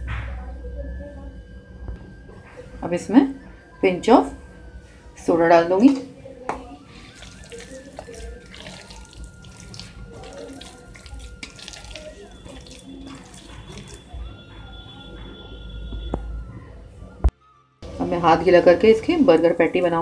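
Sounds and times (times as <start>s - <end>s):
hand squelching wet mince: 6.6s - 14.4s.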